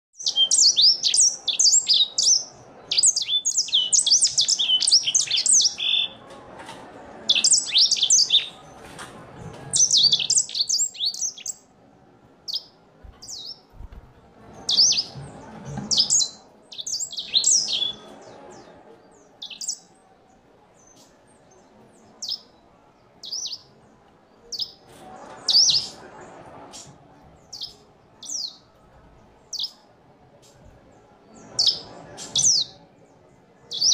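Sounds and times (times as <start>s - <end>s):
finch singing: 0.2s - 6.2s, 7.3s - 8.7s, 9.7s - 11.7s, 12.5s - 20.0s, 20.8s - 22.6s, 23.2s - 23.8s, 24.4s - 24.8s, 26.8s - 28.8s, 29.5s - 29.8s, 31.3s - 32.8s, 33.7s - 33.9s.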